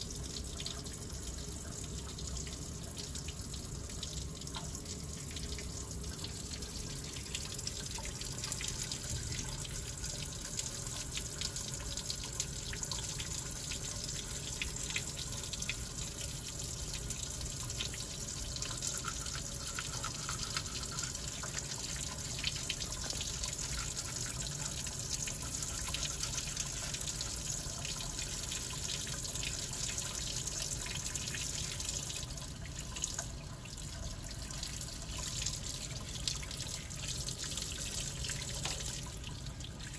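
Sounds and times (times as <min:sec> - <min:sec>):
tap water running into sink: 0:00.0 - 0:39.9
toothbrush scrubbing: 0:18.7 - 0:21.6.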